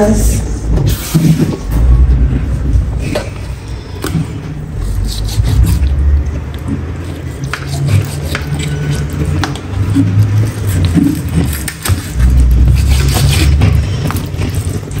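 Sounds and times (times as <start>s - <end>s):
low rumble: 1.5s - 7.0s
knife scraping through meat: 4.7s - 6.0s, 6.7s - 15.0s.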